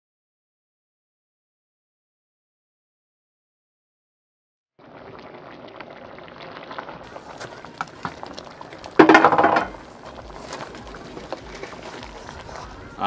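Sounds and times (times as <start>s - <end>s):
meat boiling in pot: 4.8s - 13.0s.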